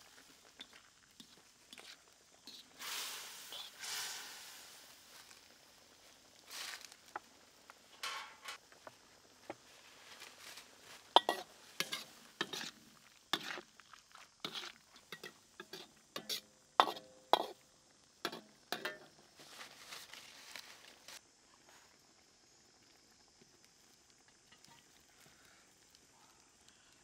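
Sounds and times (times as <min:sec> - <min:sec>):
stir-fry simmering: 0:00.0 - 0:19.6
ladle clinking in wok: 0:11.2 - 0:12.6, 0:18.3 - 0:19.1.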